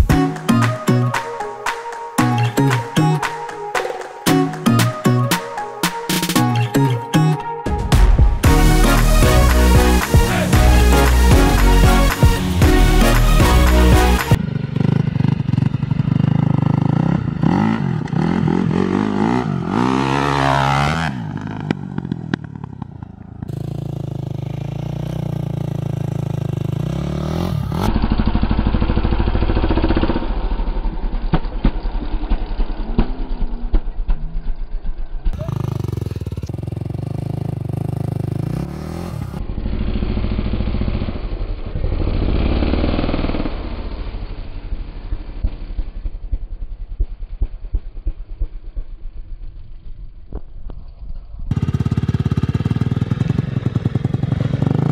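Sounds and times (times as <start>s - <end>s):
motocross engine revving: 8.5s - 31.2s, 35.4s - 44.1s, 51.5s - 54.9s.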